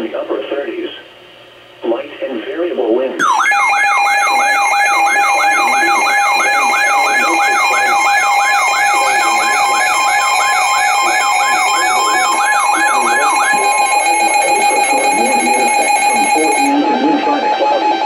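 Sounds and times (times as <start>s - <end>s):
high beeping tones: 3.2s - 18.0s
siren-like sweeping tone: 3.2s - 18.0s
steady alarm tone: 3.2s - 18.0s.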